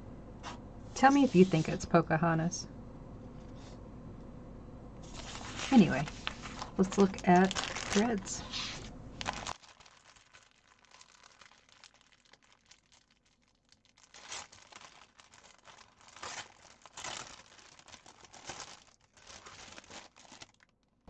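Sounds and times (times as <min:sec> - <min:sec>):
plastic bag crinkling: 0:05.0 - 0:20.9.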